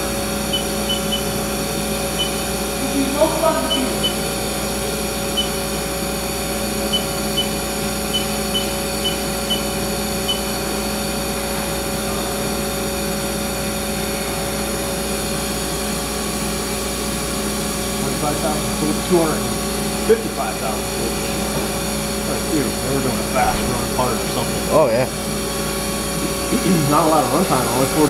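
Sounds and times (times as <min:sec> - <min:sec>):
lathe humming: 0:18.6 - 0:28.0.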